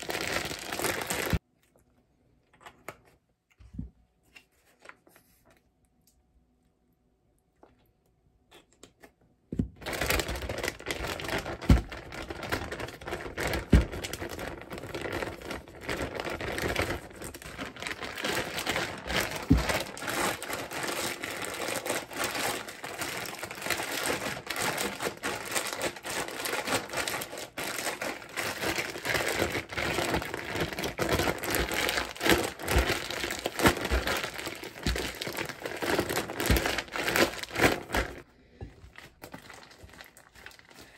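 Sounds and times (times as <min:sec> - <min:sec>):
plastic bag crinkling: 0:00.0 - 0:01.4, 0:09.8 - 0:38.2, 0:38.9 - 0:40.9.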